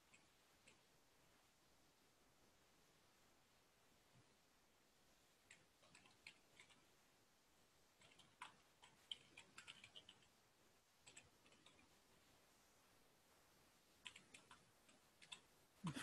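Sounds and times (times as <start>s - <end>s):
faint keyboard typing: 0.0s - 0.9s, 5.4s - 7.0s, 7.9s - 10.4s, 11.0s - 12.0s, 13.9s - 16.0s.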